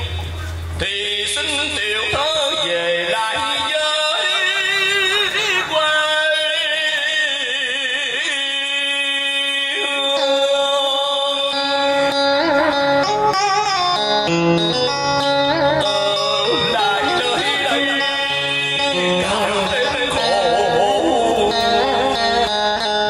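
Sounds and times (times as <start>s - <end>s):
steady musical accompaniment: 10.0s - 23.0s
melody with vibrato notes: 11.6s - 23.0s.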